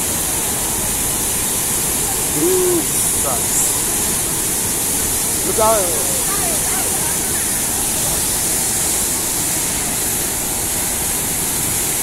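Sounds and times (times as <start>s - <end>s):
river rushing in rapids: 0.0s - 12.0s.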